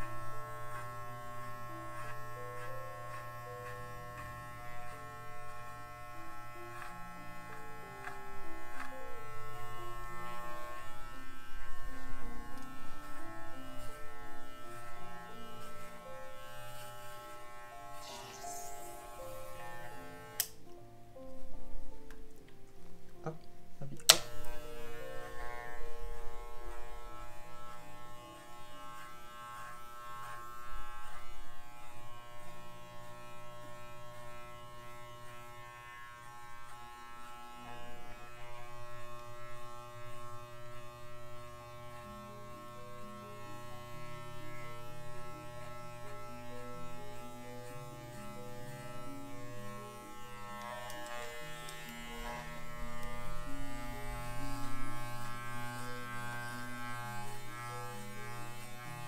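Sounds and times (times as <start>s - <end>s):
electric hair clippers buzzing: 0.0s - 20.8s, 24.0s - 59.0s
background music: 0.0s - 59.0s.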